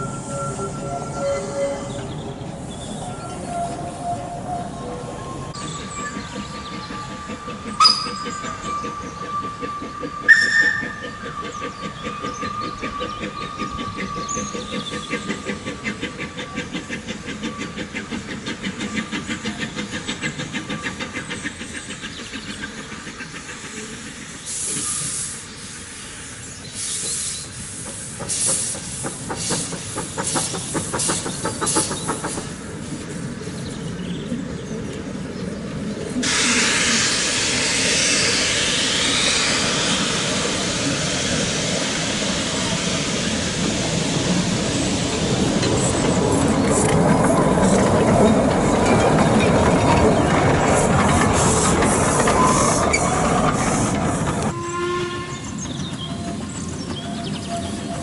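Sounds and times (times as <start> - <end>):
steam locomotive rhythmic beat: 5.5 - 25.9, 26.8 - 33.1, 36.2 - 54.6
steam hissing: 5.6 - 33.7, 36.0 - 54.6.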